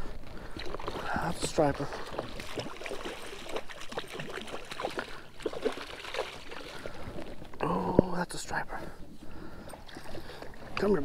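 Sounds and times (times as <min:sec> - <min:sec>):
fish thrashing and splashing water: 0:00.3 - 0:07.6, 0:09.7 - 0:11.0.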